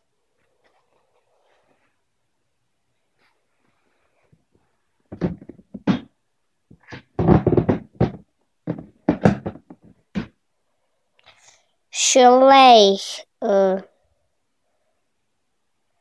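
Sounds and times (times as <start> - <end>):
plastic toys knocking together: 5.1 - 6.1, 6.7 - 10.4.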